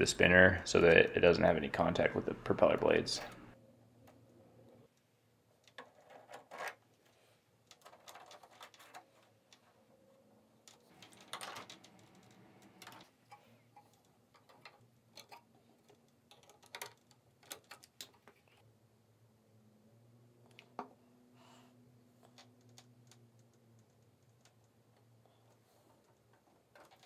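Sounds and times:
plastic parts clicking: 5.6 - 9.7, 10.6 - 18.6, 22.2 - 27.0.

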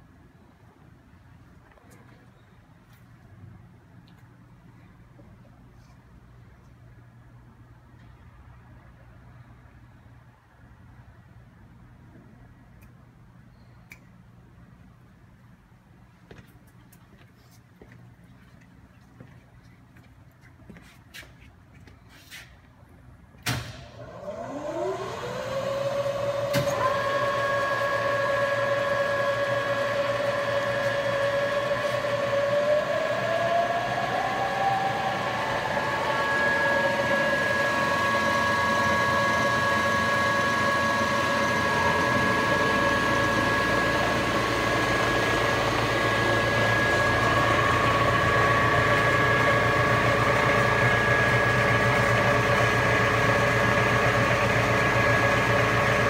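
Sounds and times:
milling machine motor whining: 24.1 - 56.0.

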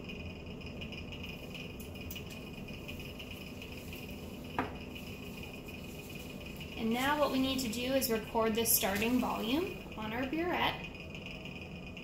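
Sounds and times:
lab equipment hum and hiss: 0.0 - 12.0.

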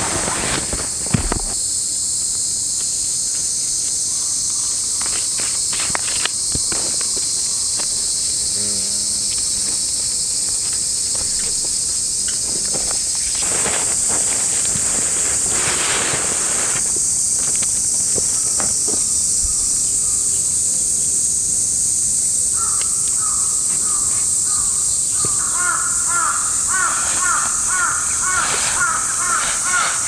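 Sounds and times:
camping gear knocks and rustles: 0.0 - 1.7, 11.1 - 19.5
high-pitched insect chorus: 0.0 - 30.0.

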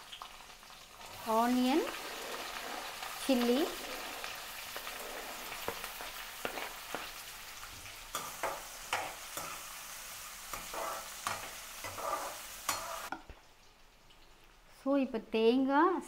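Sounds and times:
onions sizzling in hot oil: 0.0 - 15.7
metal ladle scraping a pan: 1.1 - 7.3, 8.1 - 13.2.

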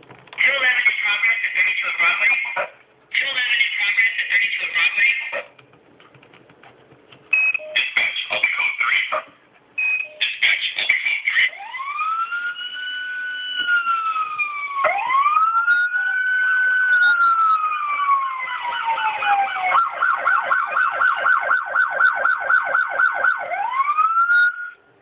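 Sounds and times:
electronic toy police siren: 11.4 - 24.8.

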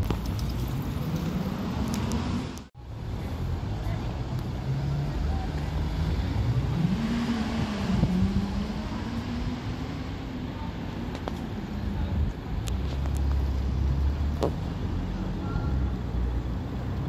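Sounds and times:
tyres on cobbles: 0.0 - 2.7.

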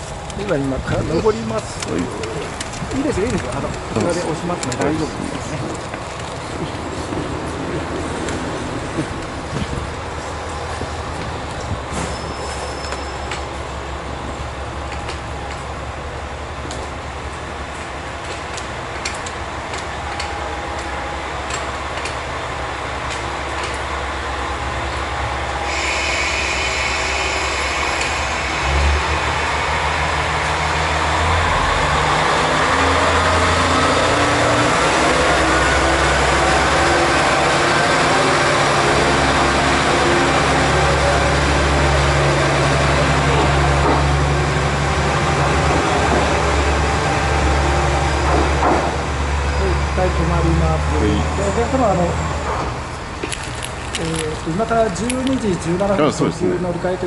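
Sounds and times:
diesel railcar engine running: 0.0 - 57.0
rising whine: 19.7 - 49.8.

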